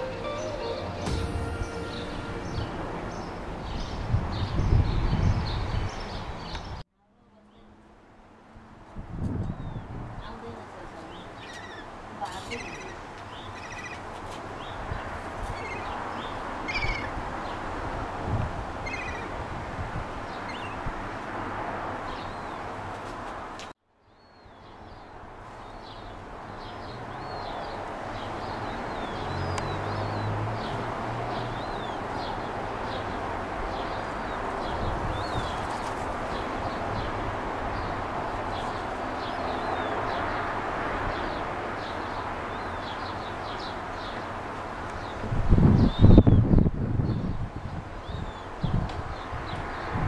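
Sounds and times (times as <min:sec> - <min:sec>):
gull chicks peeping: 0:18.8 - 0:19.3.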